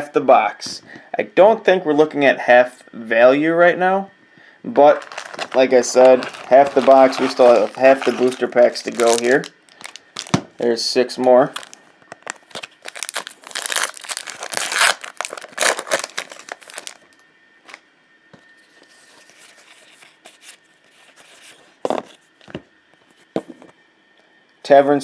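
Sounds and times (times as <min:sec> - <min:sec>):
cards being handled: 0:04.9 - 0:10.5
foil wrapper tearing and crinkling: 0:05.0 - 0:10.4, 0:11.6 - 0:17.0.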